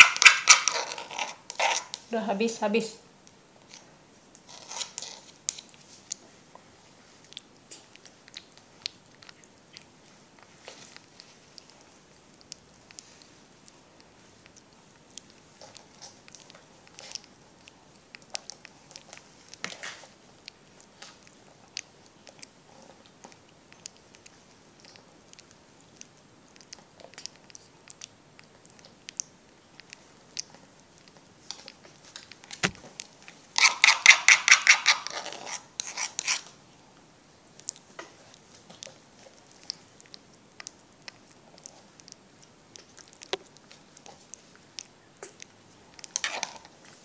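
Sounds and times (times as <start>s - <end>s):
wet clicking mouth sounds: 20.3s - 35.0s, 37.6s - 46.7s.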